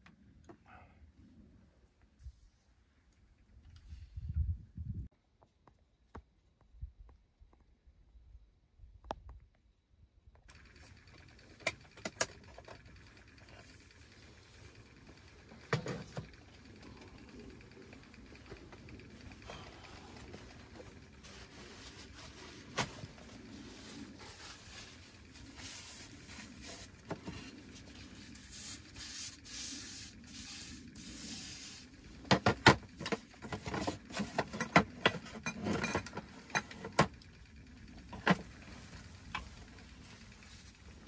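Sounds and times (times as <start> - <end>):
gear rustling and scraping: 10.5 - 41.0.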